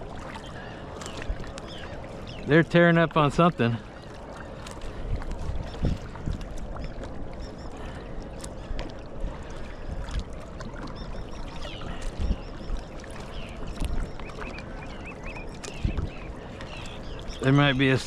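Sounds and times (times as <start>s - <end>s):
water splashing along kayak hull: 0.0s - 18.0s
faint bird calls: 10.8s - 18.0s.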